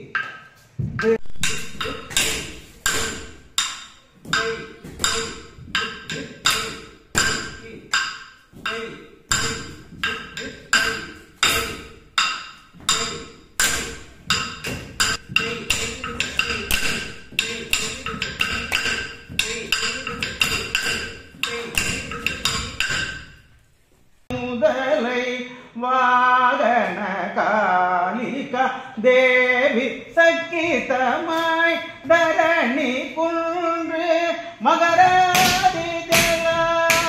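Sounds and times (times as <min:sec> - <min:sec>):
stick beaten on wooden block: 0:01.0 - 0:23.4, 0:35.0 - 0:37.0
person singing: 0:04.3 - 0:07.9, 0:15.2 - 0:22.7, 0:24.3 - 0:37.0.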